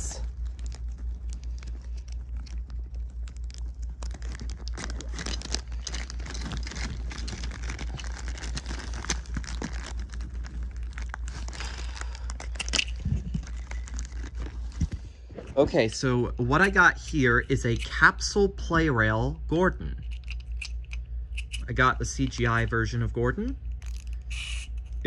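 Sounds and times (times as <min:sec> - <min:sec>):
packaging crinkling and rustling: 0:00.0 - 0:17.9
low steady hum: 0:00.0 - 0:25.0.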